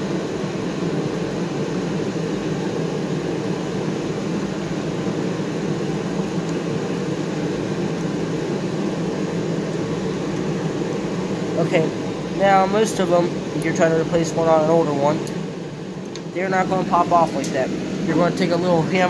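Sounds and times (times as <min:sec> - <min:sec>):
background machinery drone: 0:00.0 - 0:19.0.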